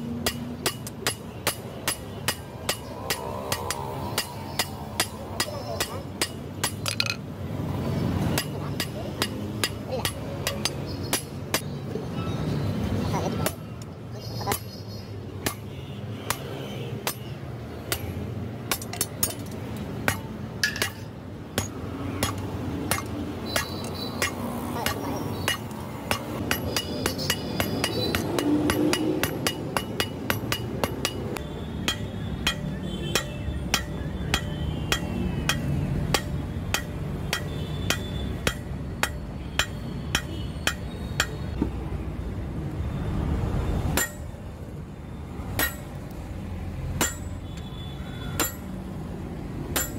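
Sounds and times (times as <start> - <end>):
hammer striking steel on anvil: 0.2 - 7.2, 8.3 - 11.7, 18.7 - 41.4, 44.0 - 44.3, 45.6 - 46.0, 47.0 - 47.4, 48.4 - 48.7.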